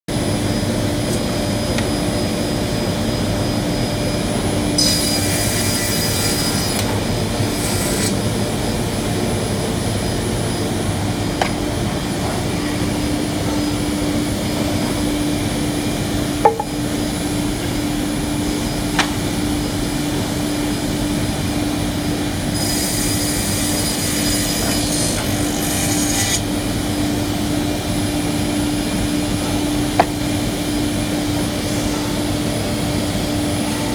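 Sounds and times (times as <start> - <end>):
circular saw cutting wood: 4.6 - 8.8, 22.1 - 32.3
wood knocking on wood: 16.4 - 16.8, 30.0 - 30.2.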